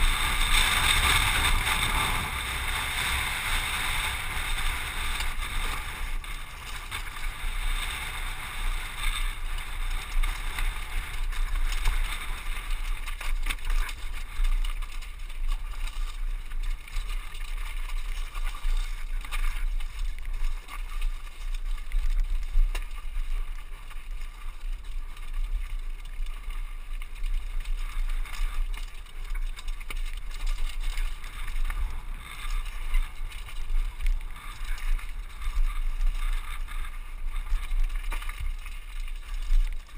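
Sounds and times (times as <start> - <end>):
wind buffeting microphone: 0.0 - 12.9
bike rattling: 0.0 - 39.9.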